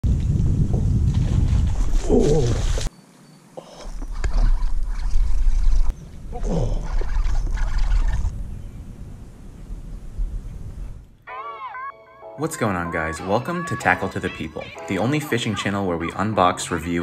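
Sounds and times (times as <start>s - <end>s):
wind buffeting microphone: 0.0s - 2.9s, 3.9s - 11.2s.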